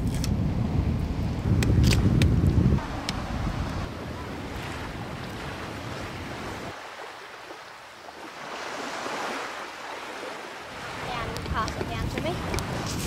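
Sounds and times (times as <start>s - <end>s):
wind buffeting microphone: 0.0s - 6.8s, 10.6s - 13.0s
surf washing on beach: 2.2s - 13.0s.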